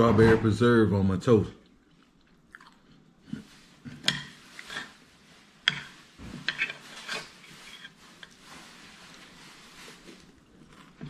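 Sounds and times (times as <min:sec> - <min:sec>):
cutlery clinking and scraping on plate: 0:03.9 - 0:05.0, 0:05.6 - 0:08.4.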